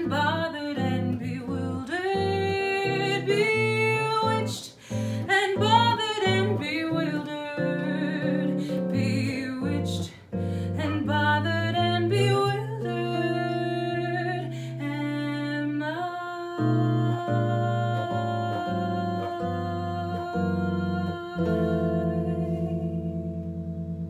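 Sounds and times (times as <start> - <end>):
woman singing a slow ballad: 0.0 - 23.6
electric bass: 16.7 - 24.0.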